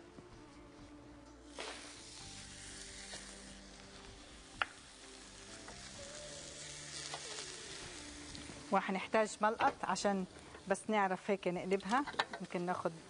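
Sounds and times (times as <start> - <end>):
meat sizzling on a grill plate: 1.5 - 12.1.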